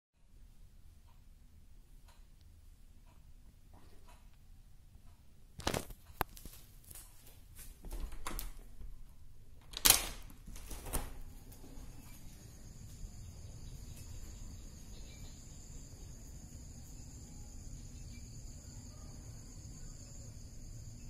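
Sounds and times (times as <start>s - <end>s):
door handle and latch clicking: 7.9s - 8.6s, 9.6s - 11.2s
insects chirring: 9.8s - 21.0s.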